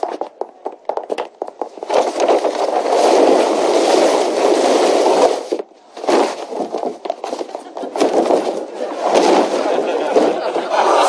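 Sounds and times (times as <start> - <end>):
studio audience laughter: 8.6 - 11.0.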